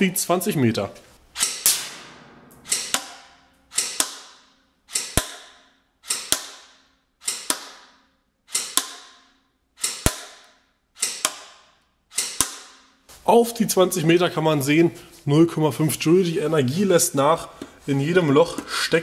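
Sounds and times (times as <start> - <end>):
airsoft pistol shots: 1.4 - 5.6.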